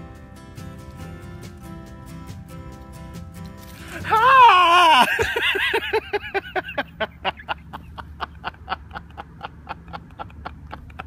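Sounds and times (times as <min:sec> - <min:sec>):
man laughing and wheezing: 0:03.8 - 0:11.0.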